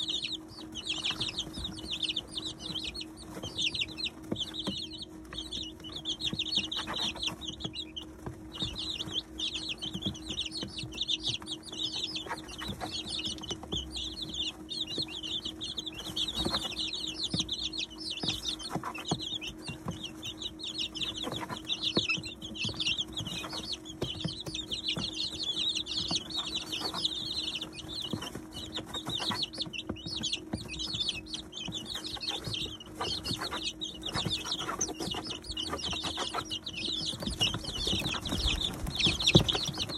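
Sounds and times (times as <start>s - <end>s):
chicks peeping: 0.0s - 39.9s
steady low hum: 0.0s - 39.9s.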